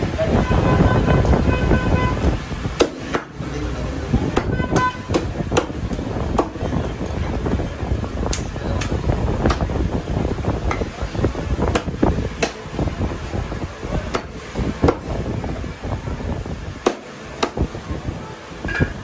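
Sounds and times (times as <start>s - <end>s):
cleaver chopping on wooden block: 2.8s - 3.3s, 16.8s - 17.6s.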